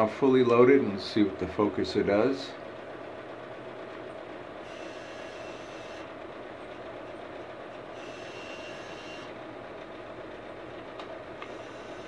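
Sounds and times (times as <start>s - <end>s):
steady background hum: 0.0s - 12.0s
electric focuser motor whining: 3.2s - 12.0s.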